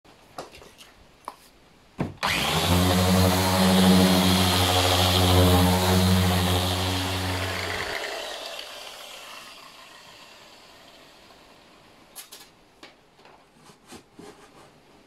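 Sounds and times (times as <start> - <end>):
orbital sander humming: 2.2 - 11.4.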